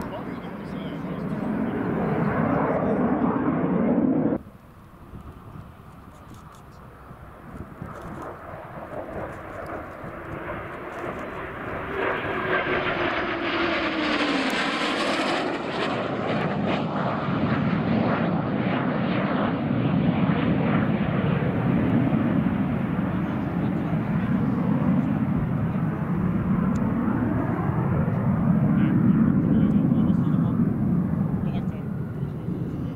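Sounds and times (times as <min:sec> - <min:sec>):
jet flying past: 0:00.0 - 0:32.9.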